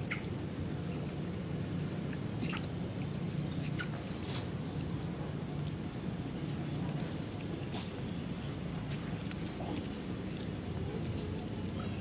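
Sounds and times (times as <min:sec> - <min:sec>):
short insect chirps: 0:00.0 - 0:05.0
insect drone: 0:00.0 - 0:12.0.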